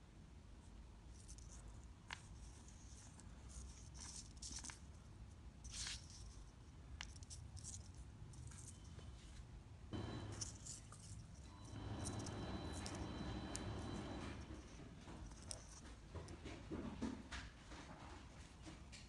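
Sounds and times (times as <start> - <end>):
rustling and scraping on paper: 1.1 - 9.5, 10.4 - 16.4.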